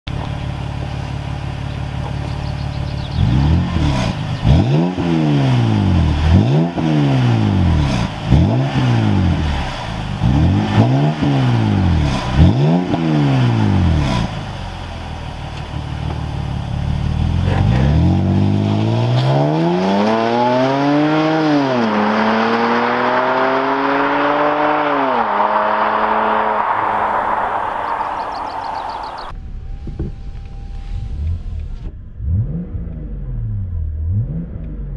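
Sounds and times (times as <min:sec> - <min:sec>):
car engine idling: 0:00.1 - 0:04.9, 0:13.2 - 0:18.8, 0:24.8 - 0:34.9
car engine throttle blips: 0:00.1 - 0:34.9
car accelerating through upshifts: 0:03.0 - 0:14.4, 0:17.1 - 0:29.3, 0:30.9 - 0:34.9.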